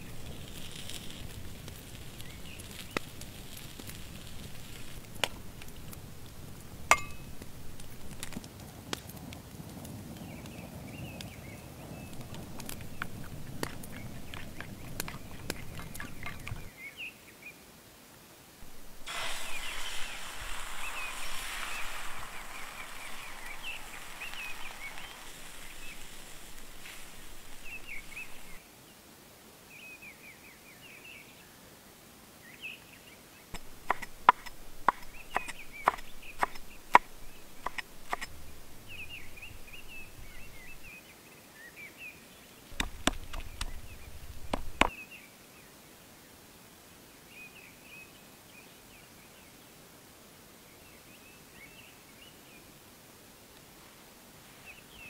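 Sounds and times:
small birds chirping: 0:00.0 - 0:07.4, 0:10.2 - 0:17.5, 0:18.6 - 0:28.6, 0:32.6 - 0:45.3
egg sizzling in a skillet: 0:00.0 - 0:08.4, 0:18.6 - 0:28.6, 0:33.6 - 0:40.9
sharp clicks and taps: 0:33.6 - 0:38.3, 0:42.8 - 0:43.8.

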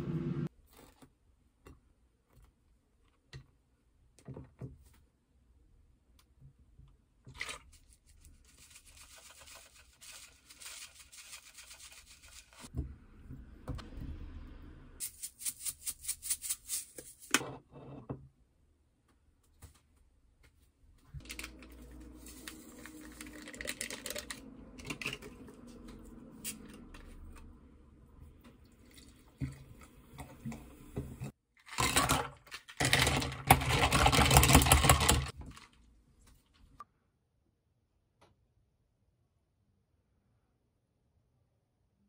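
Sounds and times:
seasoning shaker rattling: 0:08.5 - 0:12.7, 0:15.0 - 0:17.3.

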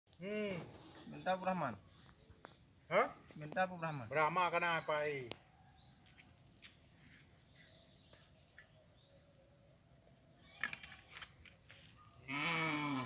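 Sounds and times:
faint birdsong chirps: 0:00.1 - 0:13.0
man talking: 0:02.9 - 0:05.4.

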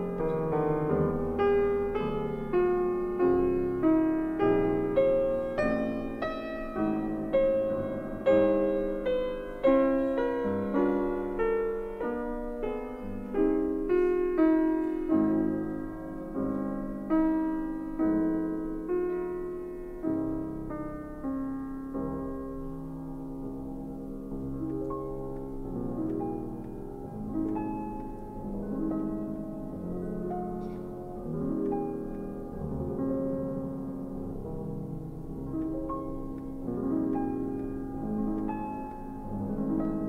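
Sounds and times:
slow piano music: 0:00.0 - 0:40.0.

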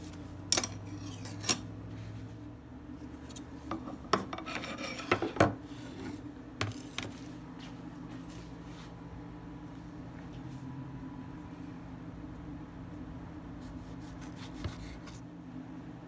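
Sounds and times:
steady low hum: 0:00.0 - 0:16.0
metal strainer scraping and rustling: 0:04.3 - 0:05.9.

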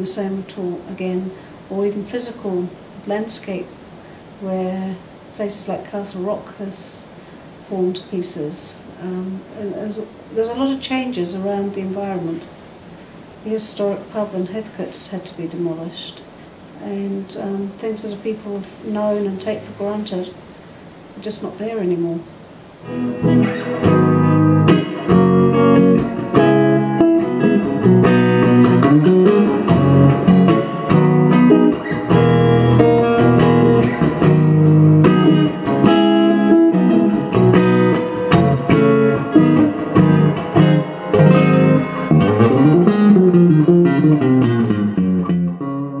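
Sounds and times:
electric guitar playing: 0:22.7 - 0:46.0.

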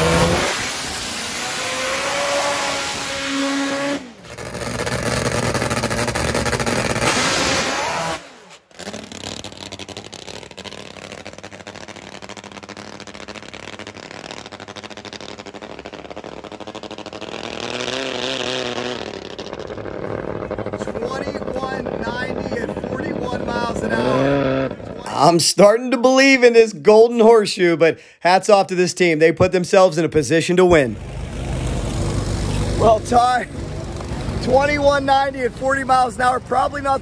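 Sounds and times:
drag motorcycle engine revving: 0:00.0 - 0:25.6, 0:30.6 - 0:37.0
engine and track noise: 0:00.0 - 0:25.6, 0:30.0 - 0:37.0.

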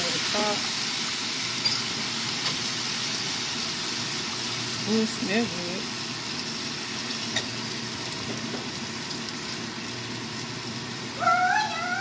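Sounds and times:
food sizzling on a tray: 0:00.0 - 0:12.0
cat meowing: 0:11.2 - 0:12.0.

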